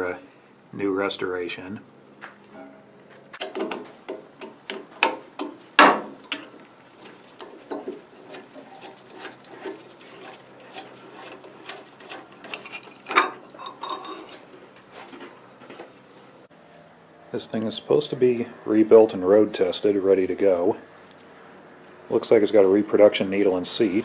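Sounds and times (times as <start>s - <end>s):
metal tools and parts clinking: 6.2s - 6.6s, 11.2s - 14.4s, 19.8s - 21.3s, 22.0s - 24.0s
rag rubbing: 7.0s - 14.4s.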